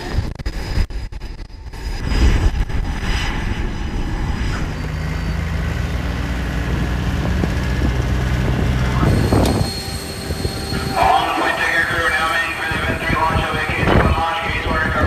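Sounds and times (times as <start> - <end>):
loud rumbling noise: 0.0 - 15.0
tow tractor engine humming: 3.6 - 15.0.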